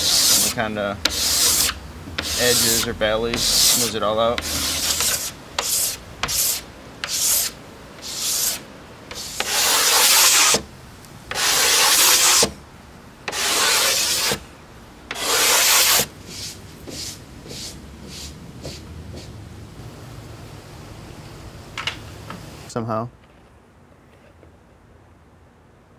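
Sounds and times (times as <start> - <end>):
sandpaper rubbing on wood: 0.0 - 10.6, 11.3 - 12.5, 13.3 - 14.4, 15.1 - 19.3.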